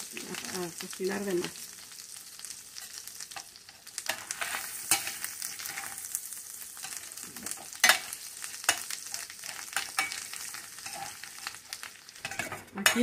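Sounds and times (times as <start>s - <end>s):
meat sizzling in a skillet: 0.0s - 13.0s
metal spatula scraping pan: 4.0s - 6.1s, 6.8s - 13.0s.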